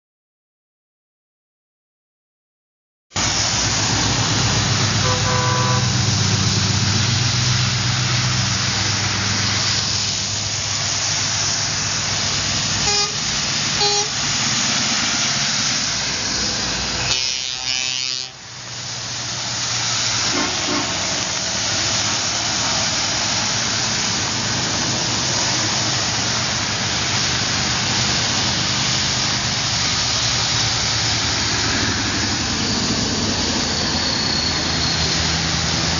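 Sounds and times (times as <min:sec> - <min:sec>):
tyres hissing on wet road: 0:03.1 - 0:35.9
heavy truck engines: 0:03.2 - 0:35.9
truck horn toots: 0:05.0 - 0:06.1, 0:12.8 - 0:14.2, 0:17.0 - 0:18.4.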